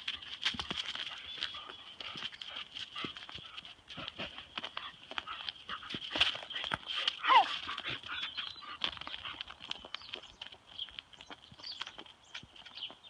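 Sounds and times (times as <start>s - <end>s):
paws and hooves on wet road: 0.0s - 13.0s
dog whining: 7.2s - 7.6s.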